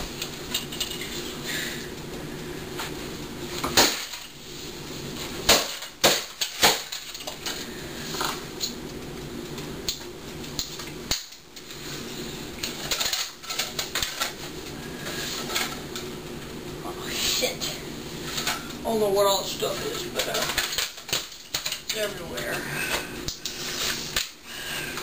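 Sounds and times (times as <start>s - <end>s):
steady low hum: 0.0s - 25.0s
plastic pieces clicking and rattling: 12.6s - 14.4s, 20.2s - 22.4s.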